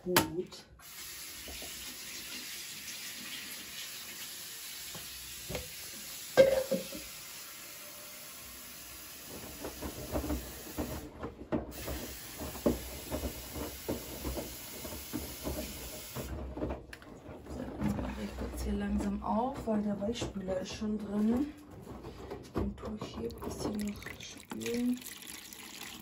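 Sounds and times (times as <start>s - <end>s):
washing machine filling with water: 0.8s - 19.4s, 23.2s - 26.0s
laundry sloshing and thudding: 9.3s - 24.8s.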